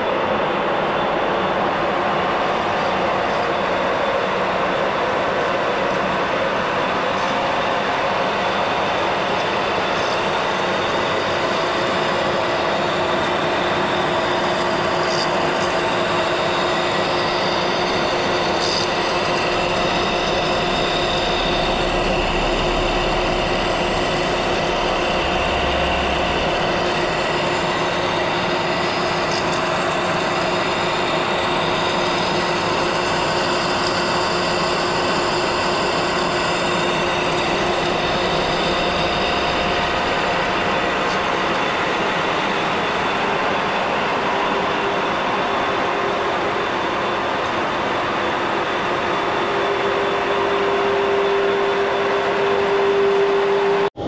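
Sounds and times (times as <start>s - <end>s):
lathe cutting metal whining: 0.8s - 54.0s.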